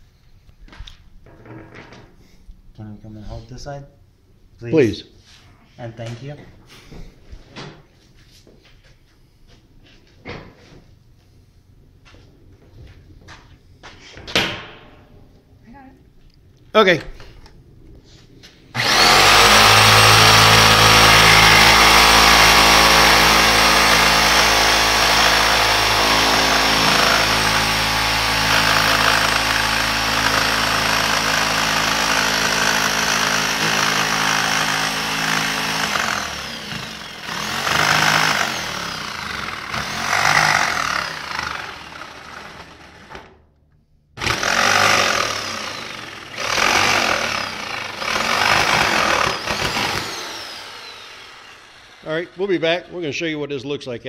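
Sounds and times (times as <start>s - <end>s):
electric jigsaw cutting: 18.7s - 43.4s, 44.2s - 52.6s.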